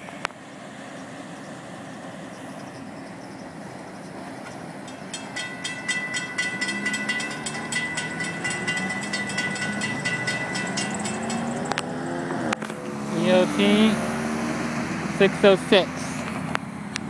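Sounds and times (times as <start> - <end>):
road traffic running: 0.0 - 17.0
railroad crossing bell ringing: 4.4 - 13.9.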